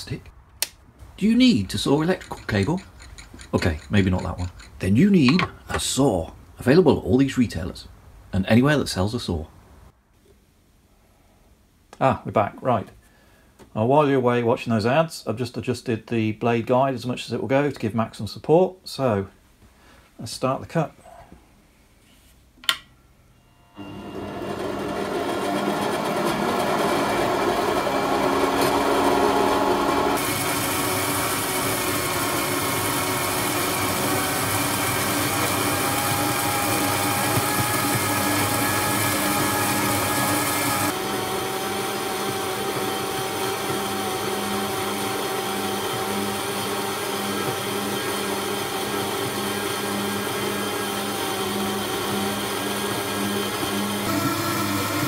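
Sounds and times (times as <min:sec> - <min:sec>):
bandsaw motor hum: 0:23.4 - 0:55.0.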